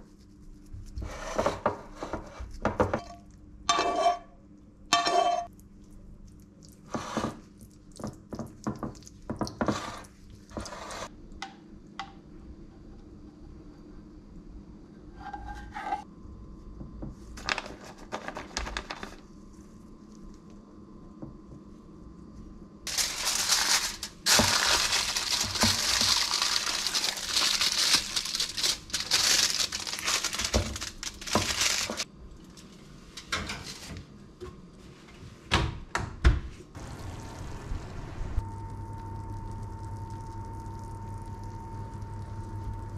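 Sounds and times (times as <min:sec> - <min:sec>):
aluminium foil crinkling: 0:22.9 - 0:32.1.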